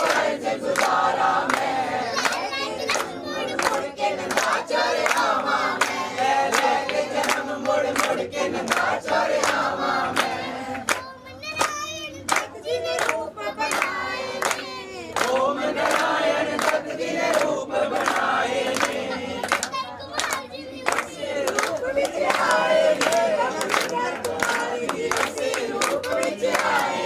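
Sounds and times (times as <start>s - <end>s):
people clapping along: 0.0s - 27.0s
girl singing: 2.1s - 4.0s, 10.5s - 15.2s, 19.3s - 21.2s.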